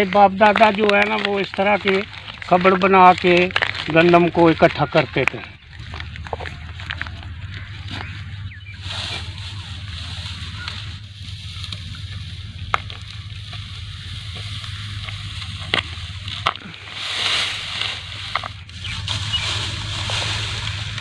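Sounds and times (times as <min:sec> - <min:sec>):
dry straw rustling and crackling: 0:00.0 - 0:21.0
low steady hum: 0:05.0 - 0:21.0.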